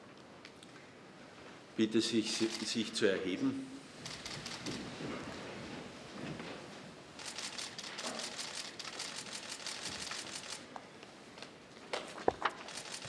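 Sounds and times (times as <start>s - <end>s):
camera shutters clicking: 2.4s - 2.8s, 4.0s - 4.9s, 7.2s - 10.7s, 12.5s - 13.0s.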